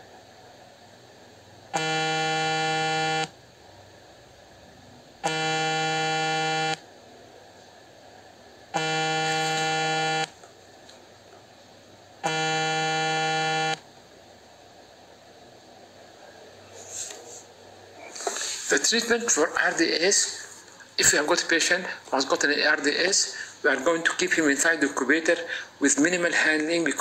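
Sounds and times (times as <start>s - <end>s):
low buzzing tone: 1.7s - 3.4s, 8.7s - 10.4s, 12.2s - 13.8s.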